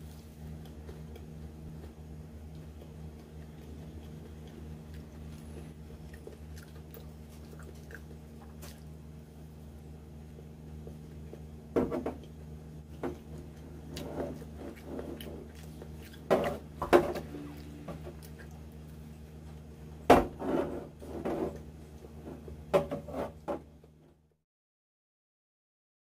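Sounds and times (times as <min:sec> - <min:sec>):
person chewing food: 0:00.0 - 0:09.2, 0:13.0 - 0:19.7
steady low hum: 0:00.0 - 0:24.4.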